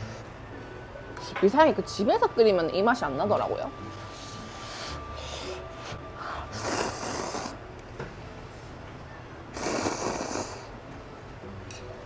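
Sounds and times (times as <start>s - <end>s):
person slurping noodles: 6.5s - 7.6s, 9.6s - 10.7s.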